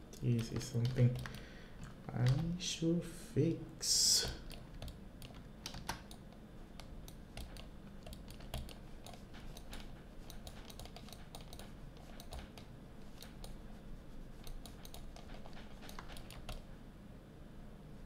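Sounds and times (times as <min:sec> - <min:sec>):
faint low hum: 0:00.0 - 0:18.0
keyboard keys clicking: 0:00.2 - 0:01.4, 0:02.2 - 0:02.5, 0:04.4 - 0:13.6, 0:14.4 - 0:16.6.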